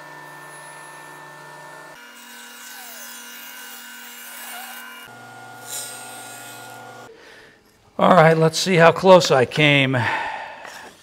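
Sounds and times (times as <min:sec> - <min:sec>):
saw blade rasping through wood: 0:00.0 - 0:07.0
table saw humming: 0:00.0 - 0:07.1.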